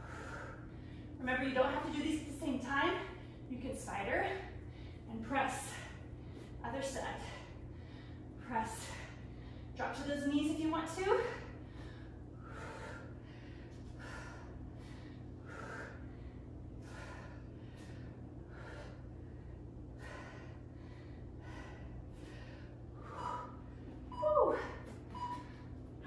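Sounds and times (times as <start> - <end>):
woman breathing hard: 0.0 - 1.2, 7.2 - 9.8, 11.2 - 26.0.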